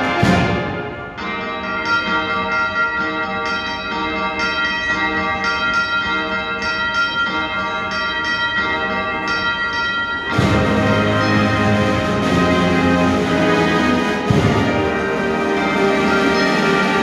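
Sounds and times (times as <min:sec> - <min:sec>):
military brass band: 0:00.0 - 0:01.3, 0:10.3 - 0:17.0
bells ringing a peal: 0:00.0 - 0:17.0.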